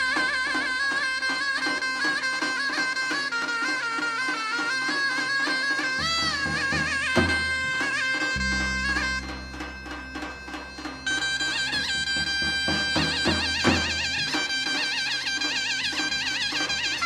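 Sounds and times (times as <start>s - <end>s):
light percussion: 0.0s - 17.0s
reed wind instrument melody: 0.0s - 17.0s
low sustained bass: 6.2s - 14.5s.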